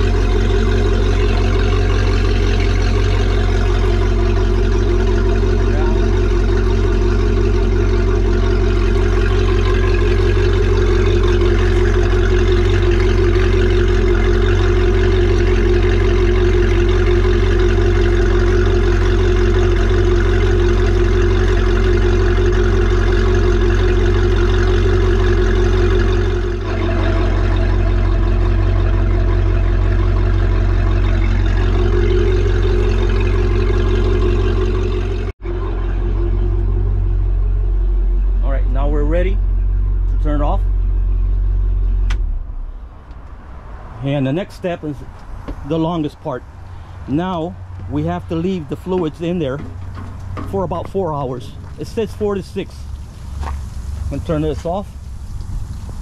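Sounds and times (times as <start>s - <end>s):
boat engine idling: 0.0s - 56.0s.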